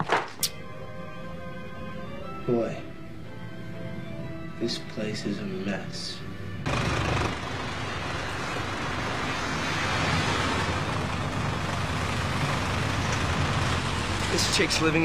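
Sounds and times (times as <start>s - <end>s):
car engine rumble: 6.7s - 15.0s.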